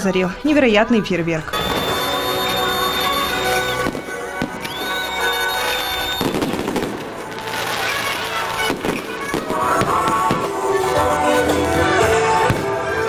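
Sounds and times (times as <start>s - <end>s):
fireworks bangs: 1.5s - 10.9s, 12.4s - 12.9s
music with held notes: 1.5s - 13.0s.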